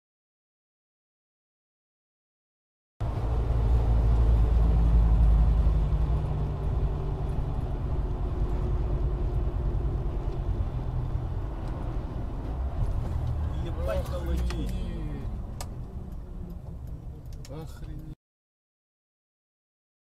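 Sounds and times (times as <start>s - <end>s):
car engine and road rumble: 3.0s - 18.2s.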